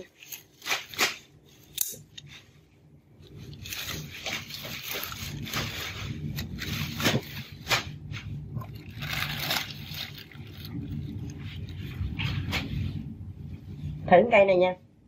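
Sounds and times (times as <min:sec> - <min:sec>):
plant leaves rustling: 0:03.2 - 0:13.1.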